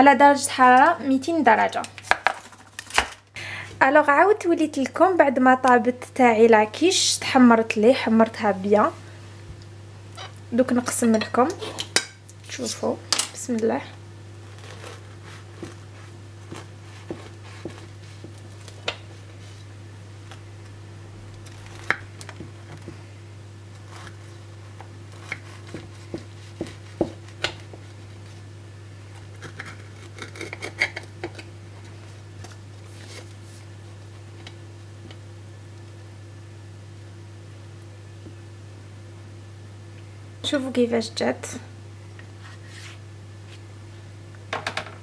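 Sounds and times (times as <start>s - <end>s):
steady low hum: 0.0s - 45.0s
knife cracking pie crust: 14.4s - 19.1s, 21.3s - 22.9s, 23.7s - 28.0s, 29.1s - 31.6s.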